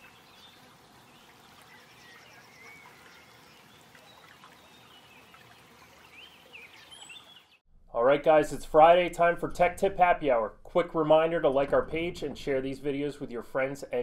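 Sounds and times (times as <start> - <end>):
bird chirps and calls: 0.0 - 7.6.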